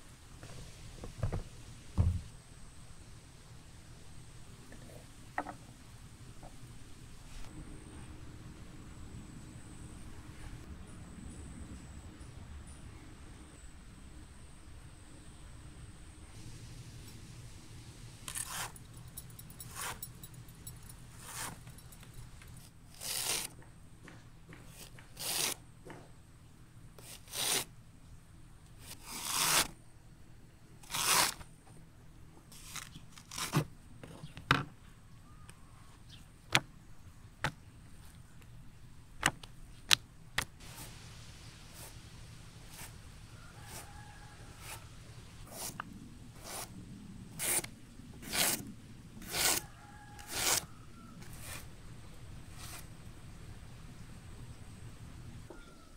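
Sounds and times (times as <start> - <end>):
hand slicer rasping strokes: 18.3 - 18.8, 19.7 - 20.0, 21.2 - 21.6, 22.9 - 23.5, 24.8 - 25.6, 27.0 - 27.7, 28.8 - 29.7, 30.8 - 31.4, 45.5 - 45.8, 46.4 - 46.7, 47.4 - 48.6, 49.2 - 49.6, 50.2 - 51.7.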